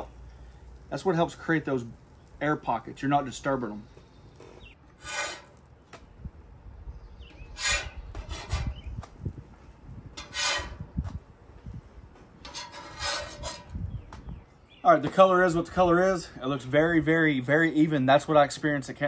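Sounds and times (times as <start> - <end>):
metal spatula scraping griddle: 4.4 - 5.6, 7.4 - 8.9, 10.2 - 10.9, 12.4 - 13.8.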